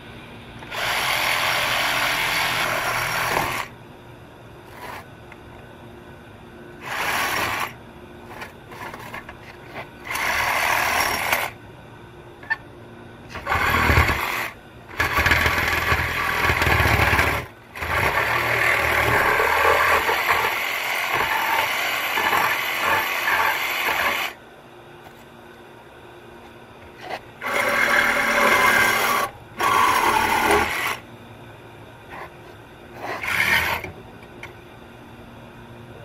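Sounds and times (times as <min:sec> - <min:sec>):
reciprocating saw cutting metal pipe: 0:33.0 - 0:33.9.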